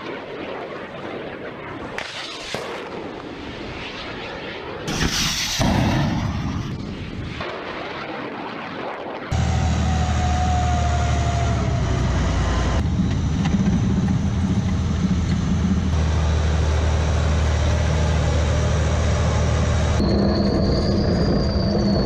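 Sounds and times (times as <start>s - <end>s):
tracked vehicle engine drone: 9.3s - 22.0s.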